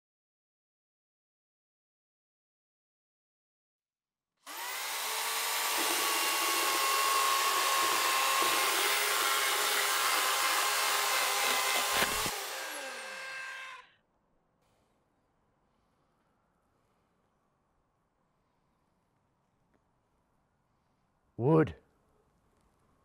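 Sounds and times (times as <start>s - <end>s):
circular saw cutting wood: 4.5s - 13.9s.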